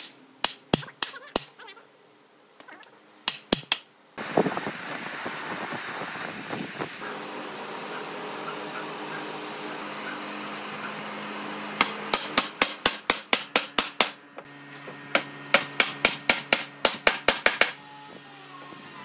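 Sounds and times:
mallet striking wood: 0:03.3 - 0:03.8, 0:11.8 - 0:14.2.

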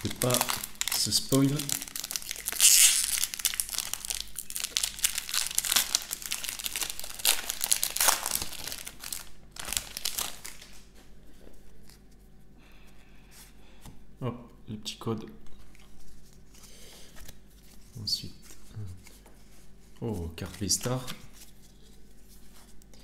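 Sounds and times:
foil wrapper crinkling and tearing: 0:00.0 - 0:10.9.

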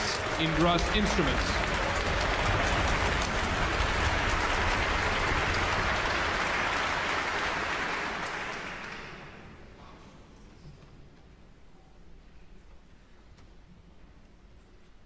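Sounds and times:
audience applauding: 0:00.0 - 0:09.6.

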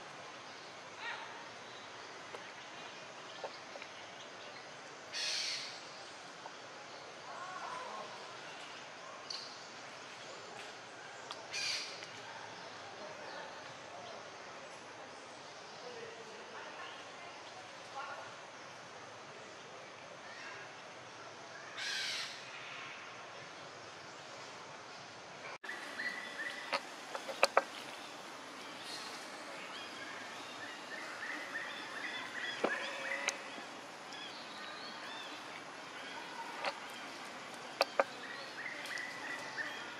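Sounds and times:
outdoor background hiss: 0:00.0 - 0:39.9
high chirping calls: 0:25.6 - 0:39.9.

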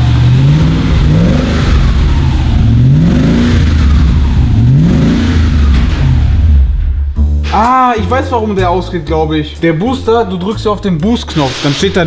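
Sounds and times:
car engine revving: 0:00.0 - 0:07.2.

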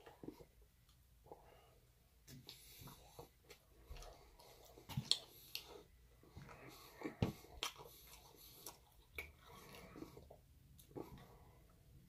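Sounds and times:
wet chewing mouth sounds: 0:02.4 - 0:11.4.

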